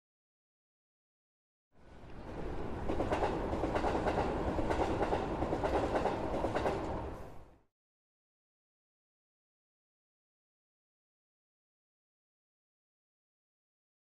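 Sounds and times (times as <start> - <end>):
train running on rails: 1.8 - 7.6.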